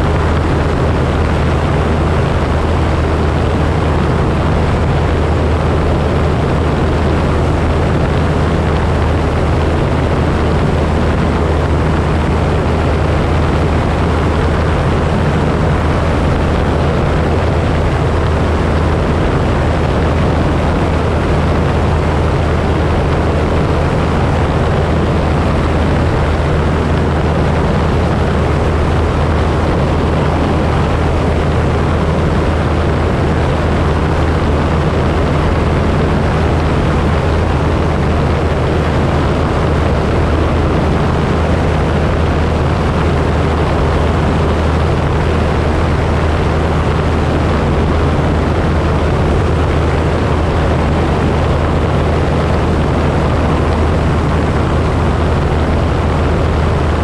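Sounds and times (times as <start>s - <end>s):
light aircraft engine droning: 0.0s - 57.0s.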